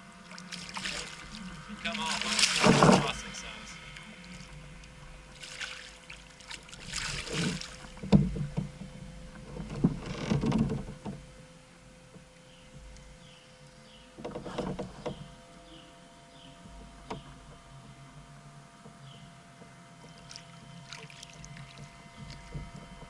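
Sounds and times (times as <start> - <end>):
water splashing and sloshing: 0.0 - 11.3, 19.6 - 23.0
knocks against kayak hull: 2.5 - 3.1, 7.3 - 8.9.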